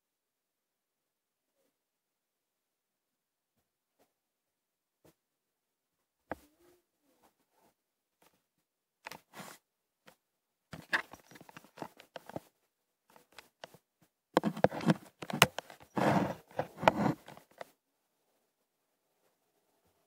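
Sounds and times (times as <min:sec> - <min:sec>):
close taps and knocks: 0:14.4 - 0:17.4.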